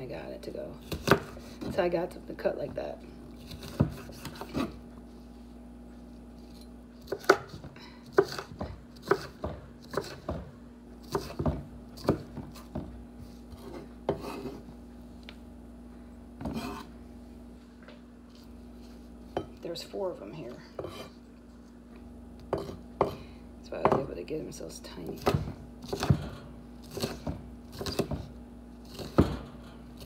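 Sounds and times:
knife chopping on wooden board: 0.8 - 1.7, 3.4 - 4.8, 7.0 - 12.9, 13.5 - 14.6, 16.4 - 16.9, 22.5 - 23.2, 25.2 - 28.3, 28.9 - 29.6
knife blade scraping board: 13.5 - 14.7, 16.4 - 16.9, 20.8 - 21.2.

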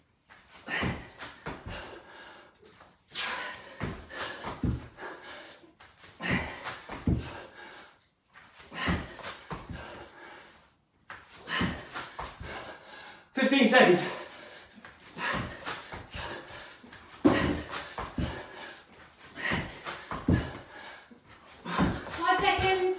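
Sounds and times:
man breathing hard: 0.5 - 22.2.

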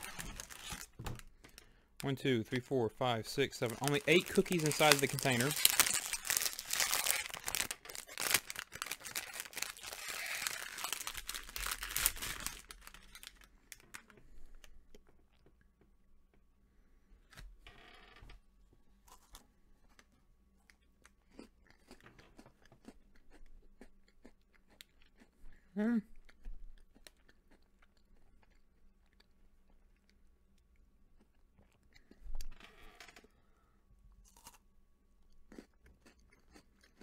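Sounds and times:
plastic packaging crinkling: 0.0 - 2.6, 3.3 - 14.1
biting crisp cookie: 3.4 - 13.3.

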